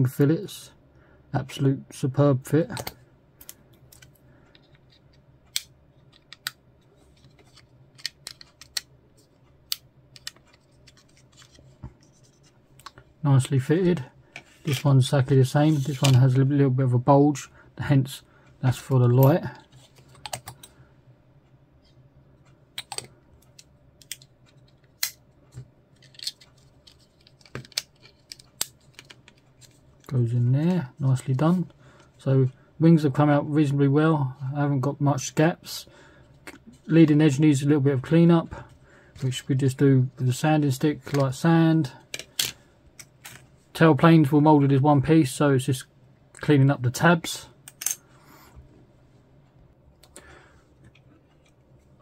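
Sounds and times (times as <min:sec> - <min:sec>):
plastic parts clicking into place: 0:07.2 - 0:08.9, 0:22.8 - 0:29.7.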